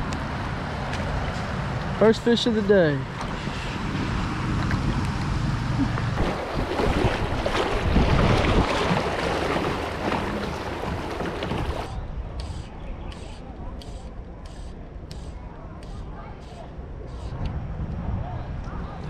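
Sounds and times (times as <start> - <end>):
river water rushing and splashing: 3.2 - 11.9
wind buffeting microphone: 3.3 - 13.3, 16.0 - 19.0.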